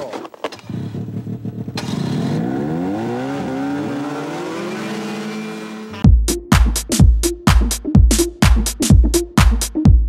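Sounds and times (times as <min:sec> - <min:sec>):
snowmobile engine revving: 0:00.6 - 0:06.0.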